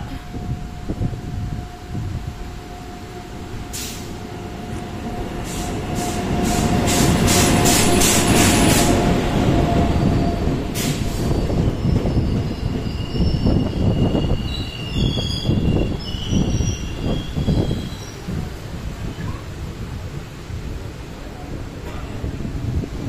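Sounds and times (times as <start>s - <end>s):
steady train tone: 0.0s - 23.0s
train passing with rolling rumble: 0.0s - 23.0s
train wheel clacks: 5.5s - 9.1s.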